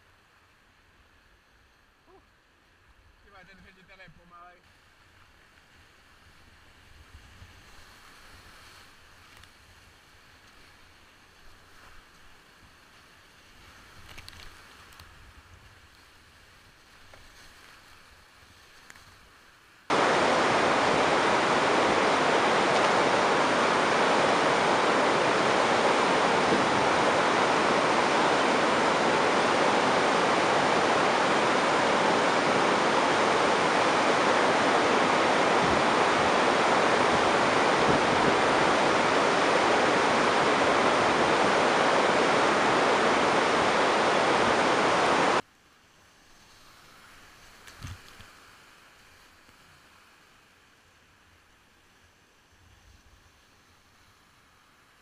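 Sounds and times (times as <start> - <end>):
whitewater rapid rushing: 19.9 - 45.4.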